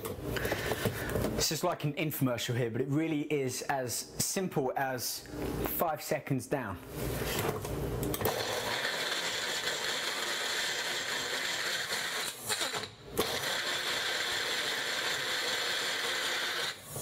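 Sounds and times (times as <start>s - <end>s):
blender motor running: 8.2s - 17.0s.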